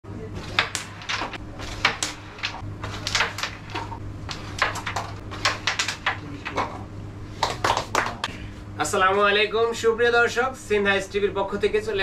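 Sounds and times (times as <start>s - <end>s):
carrom pieces clicking: 0.4s - 6.8s.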